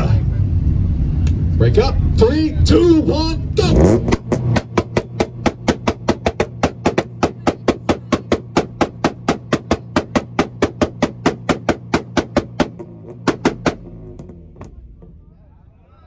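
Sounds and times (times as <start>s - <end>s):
car engine drone: 0.0s - 16.0s
exhaust pops and bangs: 3.6s - 15.5s.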